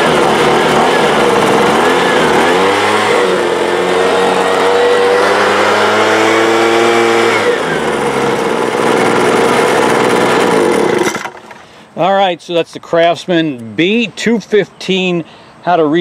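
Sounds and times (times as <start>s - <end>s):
leaf blower engine revving: 0.0s - 11.8s.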